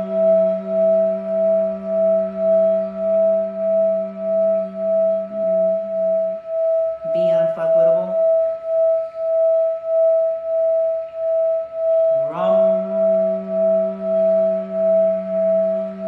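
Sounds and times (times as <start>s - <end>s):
singing bowl ringing tone: 0.0s - 16.0s
low voice chanting: 7.0s - 8.4s, 12.2s - 14.4s.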